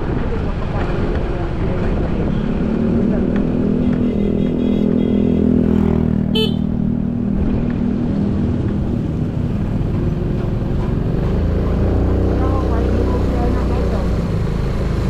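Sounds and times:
wind and road rumble: 0.0 - 15.0
horn toot: 3.8 - 6.7.

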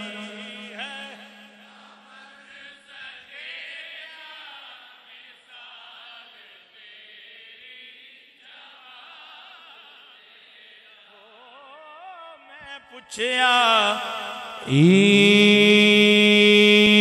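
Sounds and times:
men softly chanting: 0.0 - 17.0.

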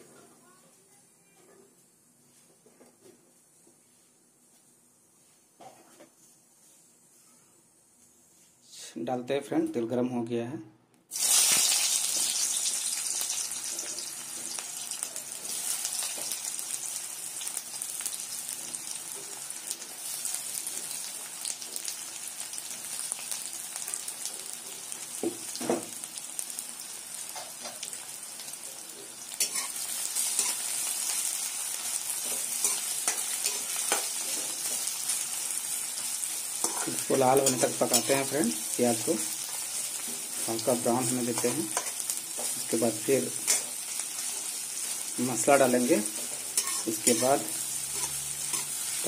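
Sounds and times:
onions sizzling in hot oil: 11.1 - 49.0
spatula scraping and stirring: 29.4 - 38.8, 39.4 - 42.8, 43.4 - 45.1, 46.0 - 49.0.

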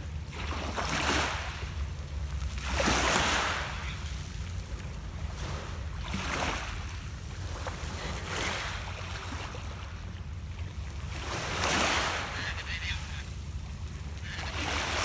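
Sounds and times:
waves washing onto pebbles: 0.6 - 1.6, 2.5 - 4.2, 11.1 - 13.2, 14.2 - 15.0.

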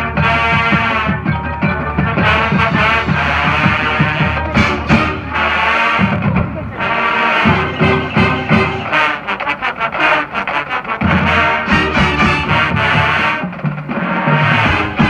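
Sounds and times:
brass chords: 0.0 - 15.0.

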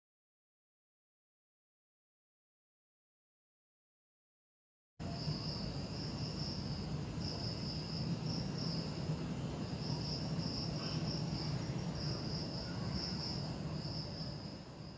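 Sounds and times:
crickets chirring: 5.0 - 14.9.

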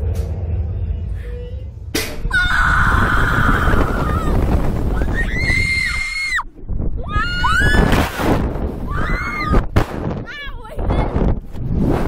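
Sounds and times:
children screaming: 2.3 - 8.0, 8.8 - 9.6
wind rushing across microphone: 2.3 - 12.0.

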